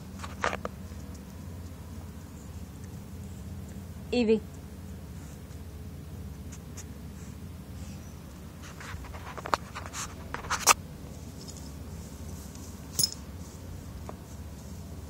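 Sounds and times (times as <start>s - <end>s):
low steady rumble: 0.0s - 15.0s
rustling through grass: 6.5s - 15.0s.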